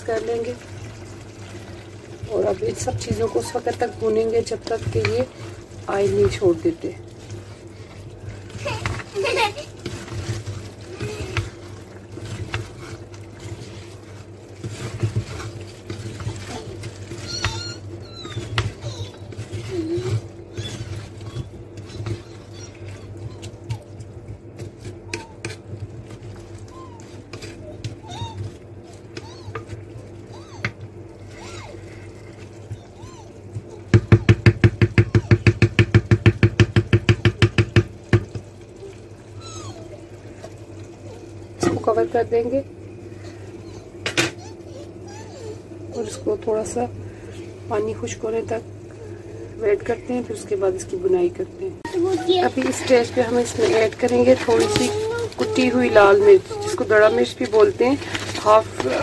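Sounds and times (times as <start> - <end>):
vegetables frying: 0.0 - 59.0
wooden spoon scraping clay pot: 2.2 - 9.1, 9.7 - 29.9, 51.8 - 59.0.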